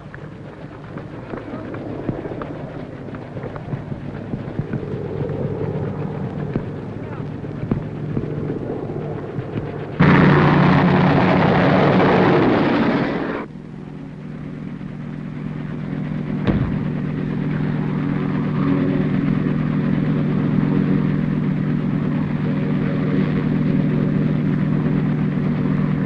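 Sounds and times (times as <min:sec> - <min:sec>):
engine drone: 0:00.0 - 0:26.0
sharp bang: 0:16.4 - 0:17.0.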